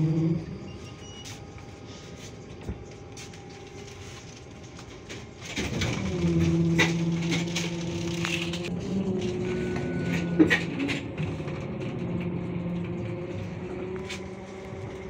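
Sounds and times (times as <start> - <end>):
trolleybus rumble and rattle: 0.0 - 15.0.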